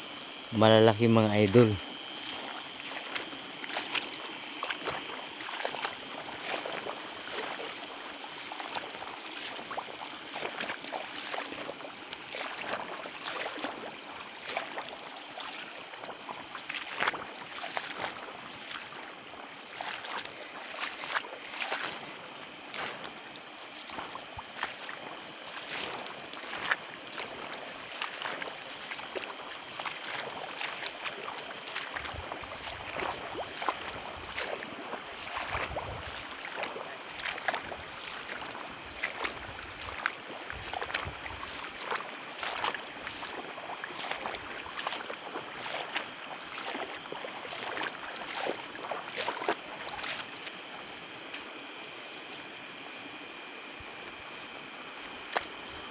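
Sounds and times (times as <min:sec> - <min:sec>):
footsteps wading through water: 0:00.0 - 0:55.9.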